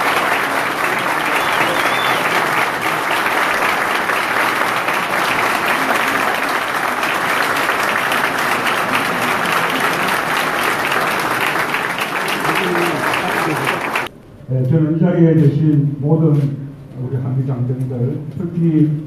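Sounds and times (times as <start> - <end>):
crowd applauding: 0.0 - 14.1.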